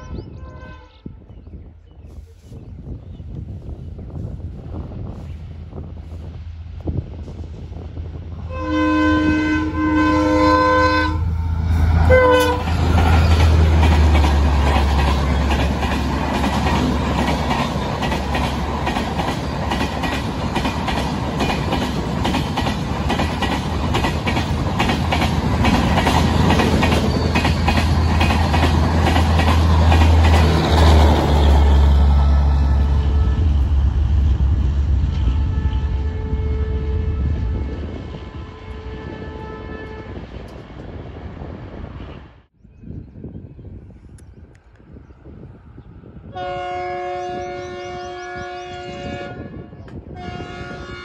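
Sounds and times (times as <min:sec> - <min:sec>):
train horn blasts: 0:00.0 - 0:01.4, 0:08.4 - 0:13.4, 0:31.4 - 0:34.2, 0:35.1 - 0:40.3, 0:46.3 - 0:51.0
train coaches rumbling past: 0:02.1 - 0:42.5
wheels clacking over rail joints: 0:12.4 - 0:31.7.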